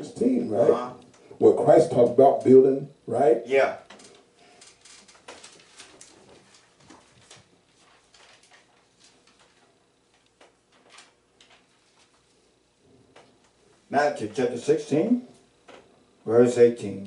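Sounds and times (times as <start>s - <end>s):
book pages turning: 4.5s - 12.3s.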